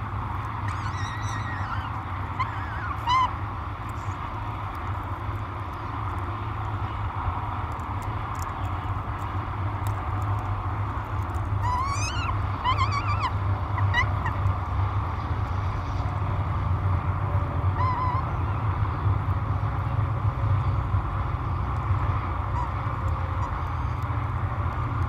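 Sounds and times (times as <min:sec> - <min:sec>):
steady low rumble: 0:00.0 - 0:25.0
falcon chick begging calls: 0:00.6 - 0:03.4, 0:11.6 - 0:14.4, 0:17.8 - 0:18.4.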